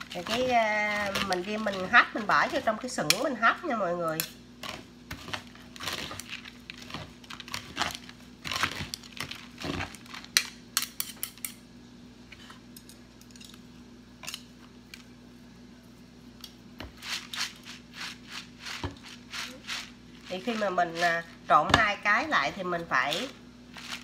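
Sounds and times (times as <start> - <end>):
spoon scraping plastic colander: 0.0 - 3.4, 16.8 - 21.4, 22.8 - 24.0.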